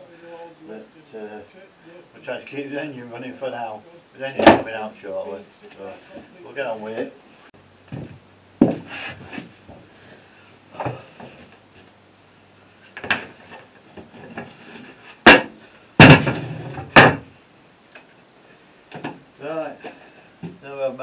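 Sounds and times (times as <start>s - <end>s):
wooden lid banging: 15.2s - 17.2s.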